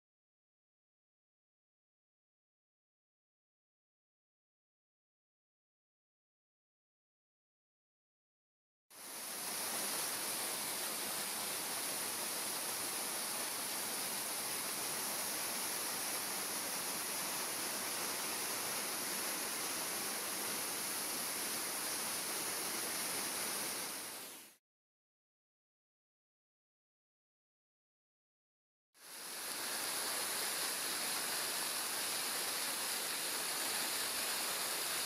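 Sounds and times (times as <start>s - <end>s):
waterfall rushing hiss: 9.0s - 24.6s, 29.0s - 35.0s.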